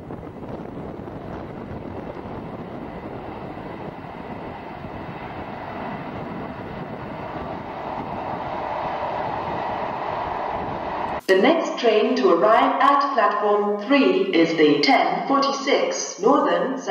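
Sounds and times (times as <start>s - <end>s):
diesel locomotive rumbling past: 0.0s - 11.2s
wind on microphone: 0.0s - 11.2s.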